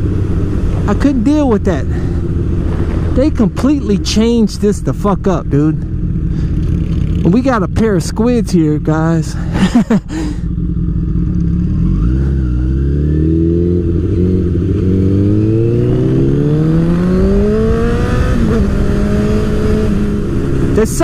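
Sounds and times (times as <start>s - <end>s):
motorcycle engine accelerating: 0.0s - 21.0s.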